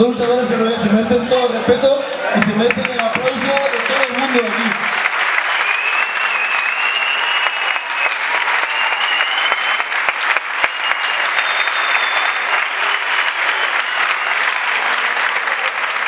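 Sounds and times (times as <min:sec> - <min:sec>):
crowd applauding: 0:02.1 - 0:16.0
long high whistles: 0:05.4 - 0:14.6.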